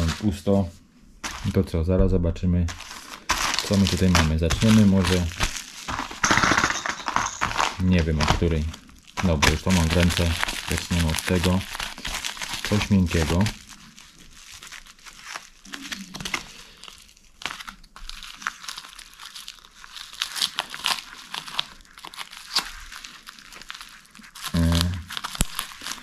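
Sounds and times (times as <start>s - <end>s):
plastic bag crinkling: 0.0s - 1.9s, 2.6s - 26.0s
scissors cutting plastic: 2.7s - 6.2s, 7.3s - 13.6s, 24.3s - 26.0s.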